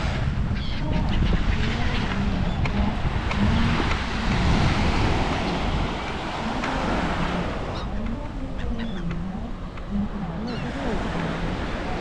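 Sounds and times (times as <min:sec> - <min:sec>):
wind buffeting microphone: 0:00.0 - 0:12.0
beach surf hiss: 0:01.5 - 0:08.6.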